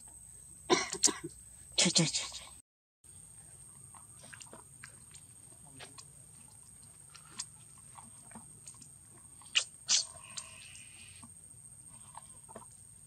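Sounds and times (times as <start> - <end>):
monkeys cracking and chewing seeds: 3.8 - 11.2.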